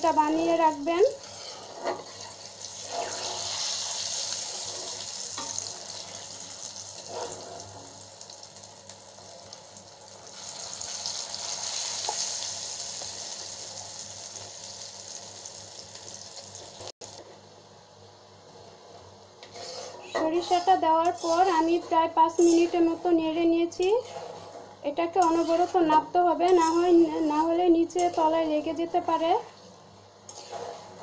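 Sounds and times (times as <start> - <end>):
oil sizzling in a pan: 0.0 - 17.2.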